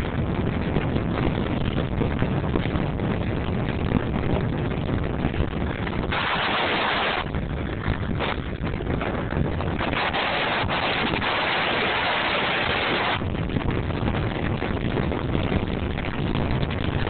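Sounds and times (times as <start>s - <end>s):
rumble of rolling on asphalt: 0.0s - 17.0s
wind rushing over microphone: 0.0s - 17.0s
loud hiss: 6.1s - 7.2s.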